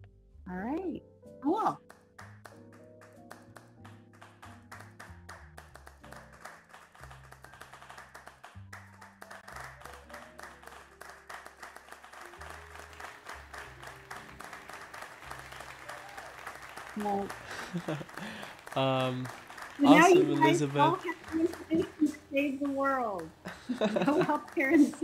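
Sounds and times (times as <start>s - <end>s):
fast continuous clapping: 1.8s - 25.0s
slow low sustained music: 16.8s - 22.6s, 23.4s - 25.0s.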